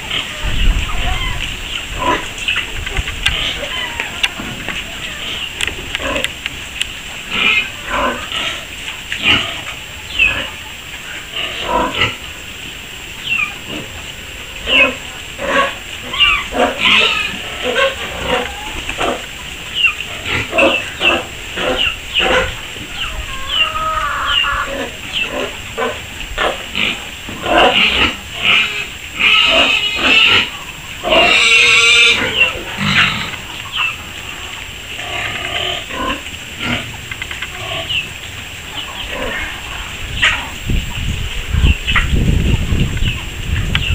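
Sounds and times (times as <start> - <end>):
piglets squealing: 3.3 - 6.2, 14.6 - 34.0.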